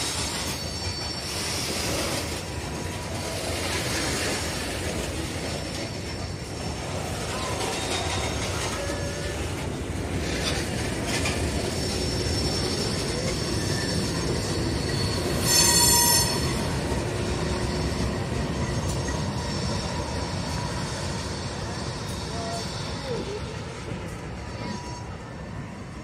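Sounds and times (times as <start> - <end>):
high-pitched wheel squeal: 0.0 - 2.4, 11.2 - 23.7, 24.4 - 25.4
diesel locomotives: 0.0 - 26.0
train wheels rumbling on rails: 0.0 - 26.0.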